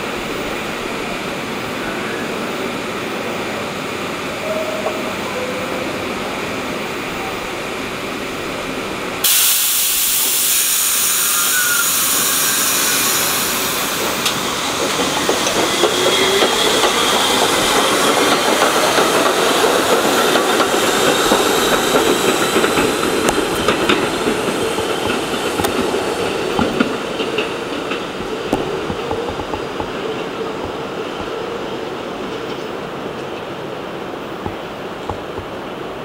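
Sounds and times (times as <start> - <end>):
train wheels rumbling on rails: 0.0 - 36.0
air brakes hissing: 9.2 - 18.3
wheels clicking on rails: 13.2 - 33.5.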